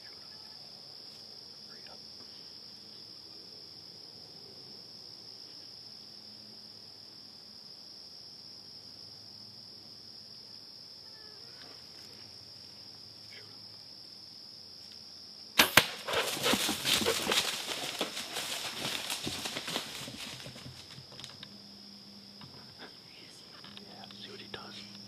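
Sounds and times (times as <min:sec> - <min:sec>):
crickets chirring: 0:00.0 - 0:25.0
bow shot cracks: 0:15.6 - 0:16.7
animal crashing through brush: 0:15.6 - 0:21.4.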